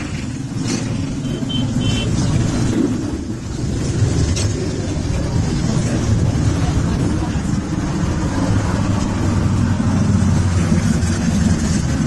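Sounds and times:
vehicles passing by rumbling: 0.0 - 12.0.

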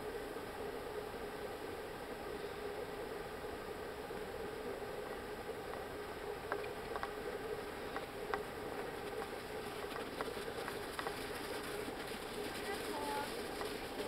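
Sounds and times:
steady hiss: 0.0 - 14.0
hooves walking on packed snow: 5.1 - 14.0.

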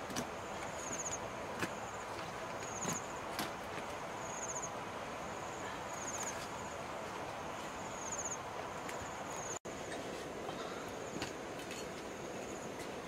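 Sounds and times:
cricket chirping trills: 4.2 - 6.8, 7.8 - 9.6.

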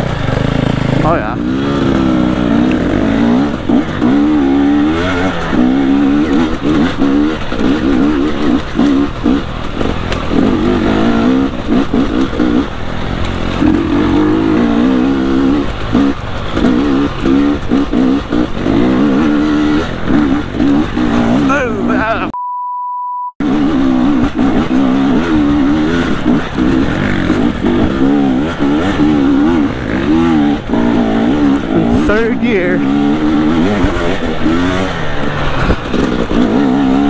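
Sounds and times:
dirt bike engine revving: 0.0 - 22.3, 23.4 - 37.0.

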